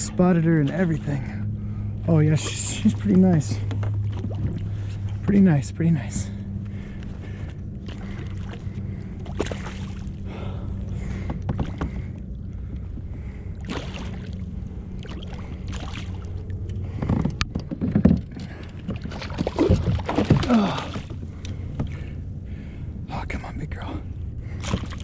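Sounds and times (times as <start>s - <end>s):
steady low hum: 0.0s - 25.0s
water sloshing against hull: 0.0s - 25.0s
fish splashing at the surface: 13.6s - 14.4s.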